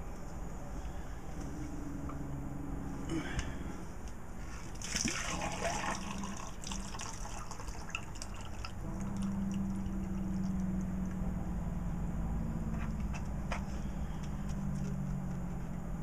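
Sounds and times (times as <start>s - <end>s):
steady low hum: 0.0s - 16.0s
water pouring into plastic cup: 4.7s - 10.2s
water dripping: 4.7s - 10.9s.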